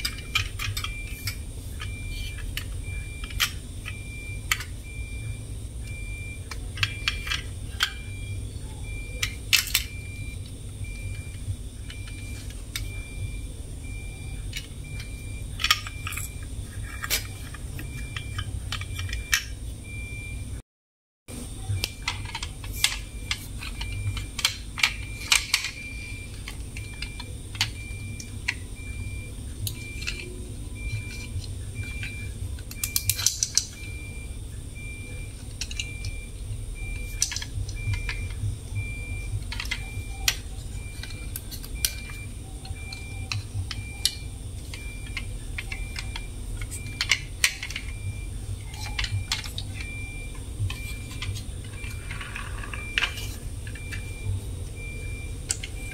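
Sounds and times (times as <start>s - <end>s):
plastic toy trucks clicking: 0.0s - 4.8s, 6.5s - 8.0s, 8.9s - 10.0s, 14.5s - 19.6s, 21.8s - 28.6s, 29.6s - 33.8s, 35.2s - 36.2s, 37.0s - 38.4s, 39.2s - 48.0s, 48.7s - 54.2s, 55.4s - 55.9s
steady low hum: 0.0s - 20.6s, 21.3s - 55.9s
faint pulsing high tone: 0.1s - 20.5s, 21.3s - 33.0s, 33.8s - 55.9s.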